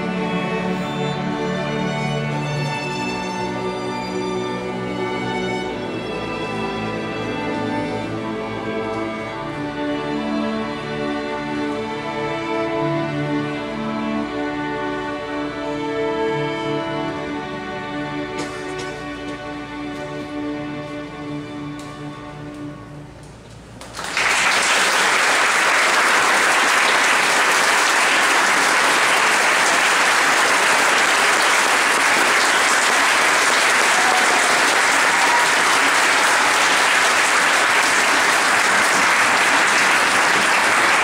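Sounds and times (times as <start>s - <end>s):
audience applause: 23.8s - 41.0s.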